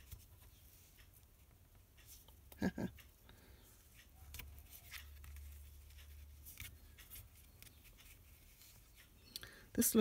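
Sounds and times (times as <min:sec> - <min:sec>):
paper and thread rustling: 0:03.8 - 0:09.1.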